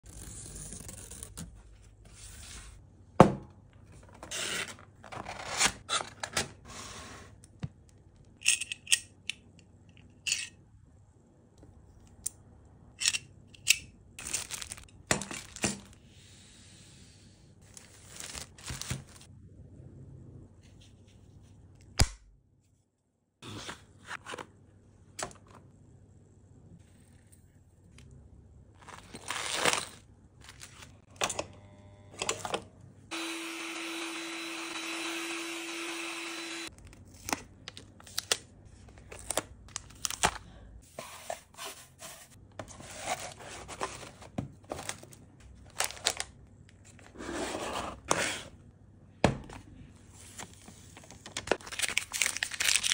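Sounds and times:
packaging tearing and rustling: 14.2s - 16.0s, 17.7s - 19.3s, 28.8s - 31.0s, 44.8s - 46.4s, 51.0s - 52.9s
plastic bags handled: 14.2s - 16.0s, 17.6s - 19.3s, 28.8s - 31.0s, 42.8s - 46.4s, 50.2s - 52.9s.

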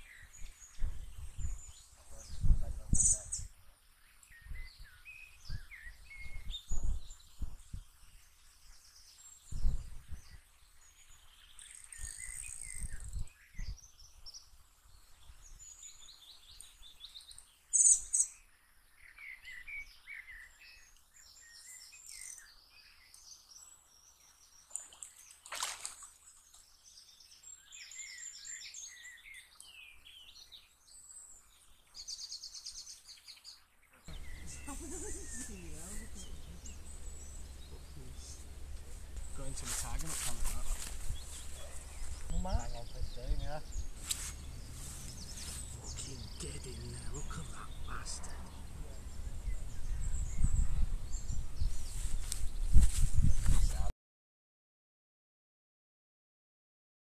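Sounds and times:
small birds singing and chirping: 0.0s - 53.9s
low thumps: 34.1s - 53.9s.

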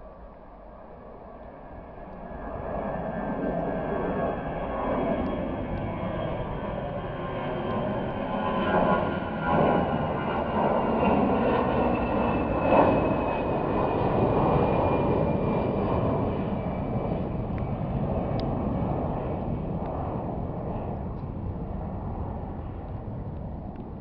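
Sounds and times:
jet engines rumbling: 0.0s - 24.0s.

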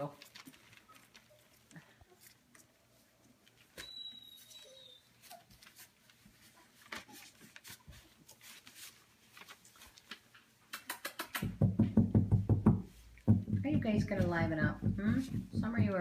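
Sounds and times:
puppies rustling on newspaper: 0.0s - 10.8s
thin high squeak: 3.8s - 5.5s.

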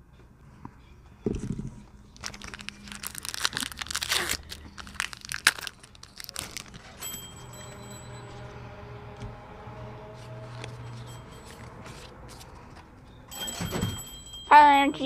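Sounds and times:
foil wrapper crackling: 2.2s - 7.0s.

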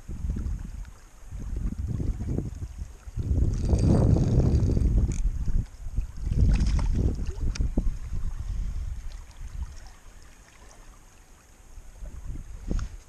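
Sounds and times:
wind buffeting microphone: 0.0s - 9.8s, 11.9s - 13.0s
faint clicks: 7.5s - 7.7s.

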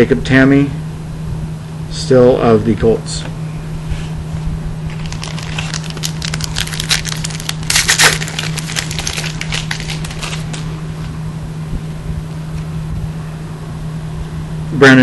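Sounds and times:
foil pack crinkling: 4.9s - 10.8s.

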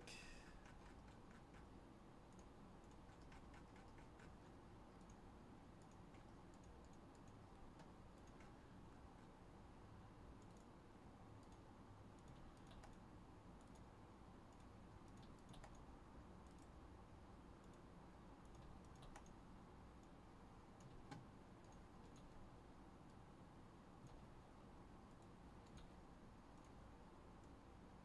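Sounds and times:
computer mouse and keyboard clicks: 0.6s - 1.7s, 2.3s - 9.4s, 10.3s - 10.8s, 11.4s - 16.8s, 17.6s - 19.4s, 20.0s - 22.4s, 24.0s - 24.3s, 25.1s - 27.6s.

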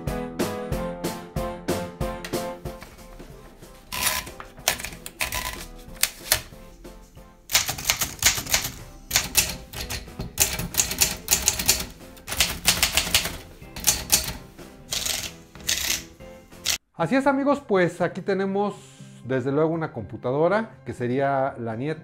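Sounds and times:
background music: 0.0s - 22.0s
typewriter clacking: 3.9s - 6.5s, 7.5s - 16.8s.

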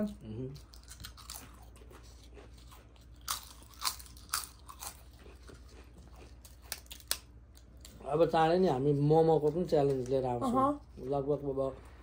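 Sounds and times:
crisp wafer being bitten and chewed: 0.1s - 8.0s.

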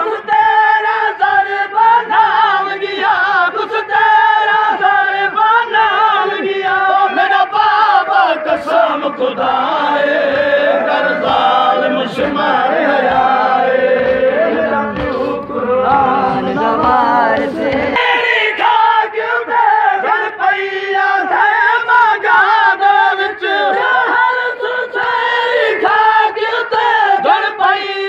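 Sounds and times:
men chanting in unison: 0.0s - 28.0s
sharp regular beats: 8.5s - 18.2s.

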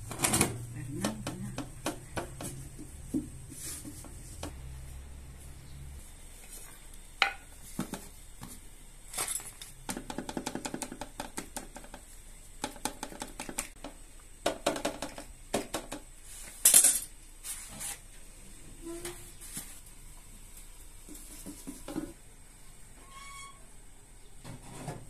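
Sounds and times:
comb tapping on metal tray: 0.2s - 3.4s, 9.8s - 16.1s.

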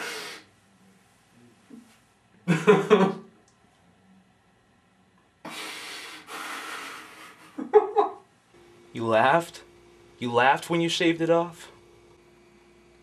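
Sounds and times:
man's stifled laughter: 2.4s - 3.3s, 7.4s - 8.2s.

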